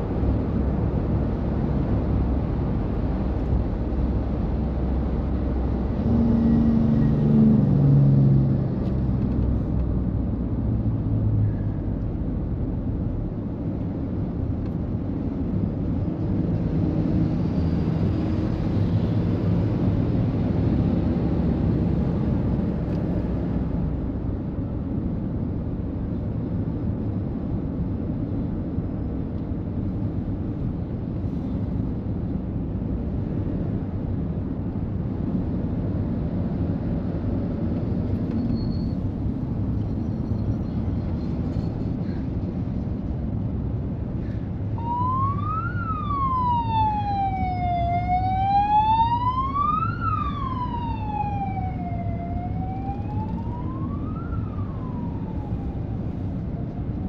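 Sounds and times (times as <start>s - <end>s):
road traffic rumble: 0.0s - 57.0s
emergency vehicle siren wailing: 44.6s - 57.0s.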